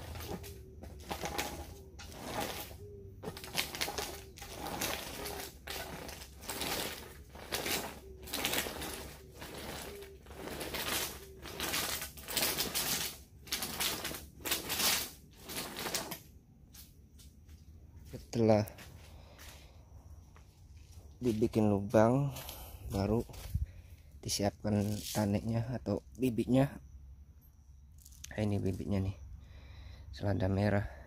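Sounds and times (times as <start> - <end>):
roller rattling scrape over trays: 0.0 - 16.3.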